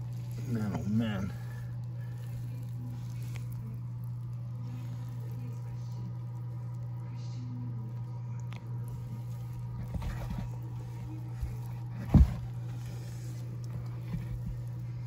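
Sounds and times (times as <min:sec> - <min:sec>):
hand rustling through compost: 0:00.0 - 0:05.6
steady low hum: 0:00.0 - 0:15.0.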